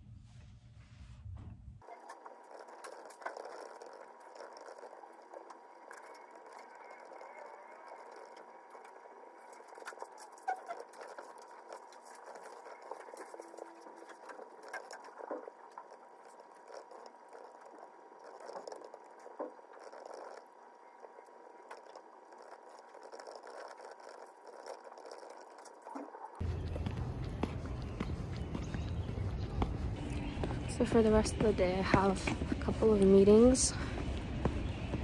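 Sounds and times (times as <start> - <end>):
thin steady tone: 1.8 - 28.1
typing on laptop keyboard: 1.9 - 26.0.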